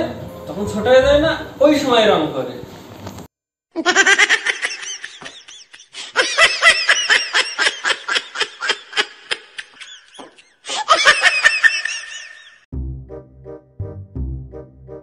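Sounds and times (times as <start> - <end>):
person laughing hard: 3.8 - 12.6.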